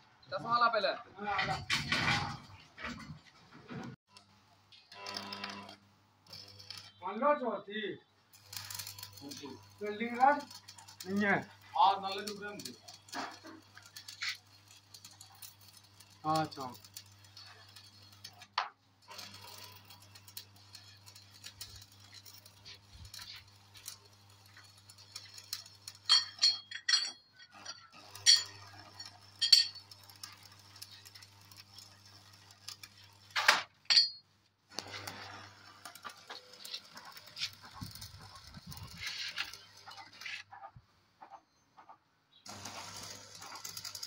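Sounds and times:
metallic clinks of angle iron: 0:19.1 - 0:32.8, 0:33.9 - 0:34.3.

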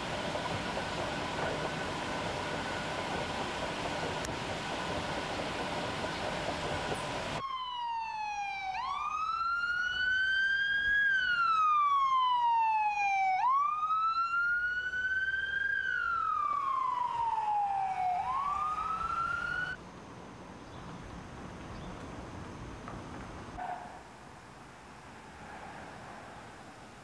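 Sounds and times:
ambulance siren wailing: 0:07.4 - 0:19.8.

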